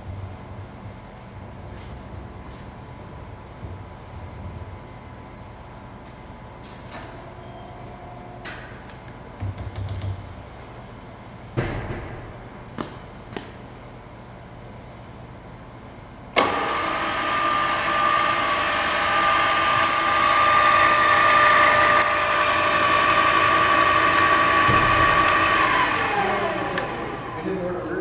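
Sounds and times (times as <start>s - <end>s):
drill motor gear whine: 16.4s - 27.9s.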